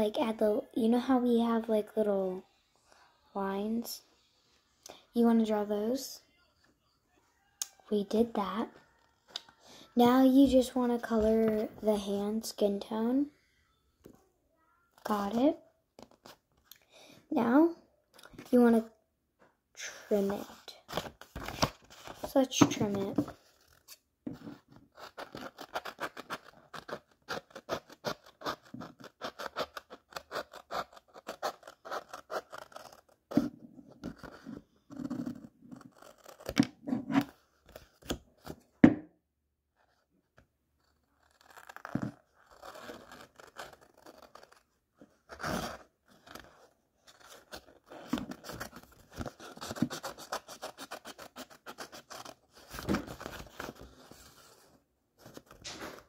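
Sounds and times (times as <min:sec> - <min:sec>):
scissors snipping paper: 0:25.0 - 0:33.2, 0:41.2 - 0:44.6, 0:45.3 - 0:53.8.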